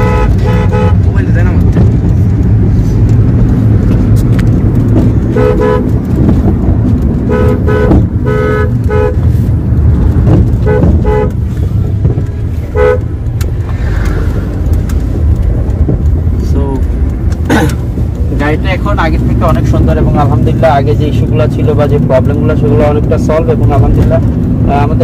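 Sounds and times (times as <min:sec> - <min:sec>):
two-tone car horn beeps: 0:00.0 - 0:01.0, 0:05.3 - 0:06.0, 0:07.2 - 0:09.2, 0:10.6 - 0:11.4, 0:12.7 - 0:13.1
car interior rumble: 0:00.0 - 0:25.0.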